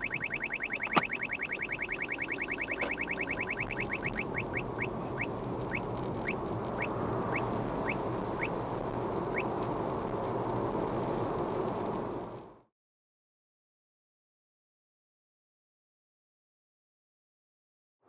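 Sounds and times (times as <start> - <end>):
radar detector chirps: 0.0 - 8.6
road noise inside car: 0.0 - 12.7.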